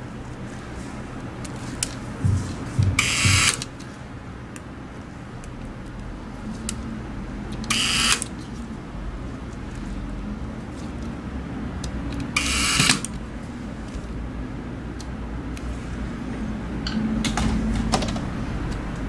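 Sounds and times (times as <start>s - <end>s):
electric screwdriver motor hum: 3.0s - 3.6s, 7.7s - 8.3s, 12.4s - 13.1s.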